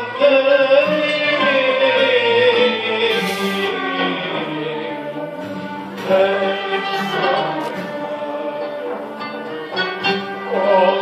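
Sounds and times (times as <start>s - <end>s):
choir singing: 0.0s - 11.0s
traditional instrument ensemble: 0.0s - 11.0s.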